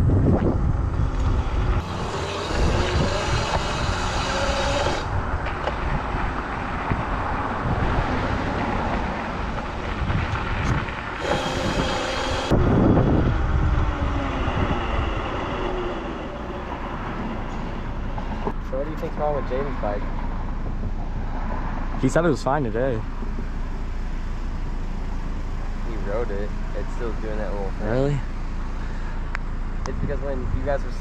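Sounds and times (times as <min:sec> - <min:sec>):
wind rushing over microphone: 0:00.0 - 0:18.6
electric motor whine: 0:01.1 - 0:05.2, 0:11.2 - 0:16.4.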